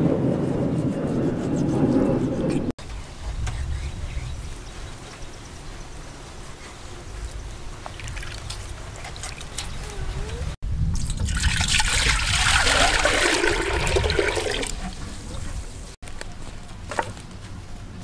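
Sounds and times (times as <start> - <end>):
water pouring into pot: 11.0 - 14.8.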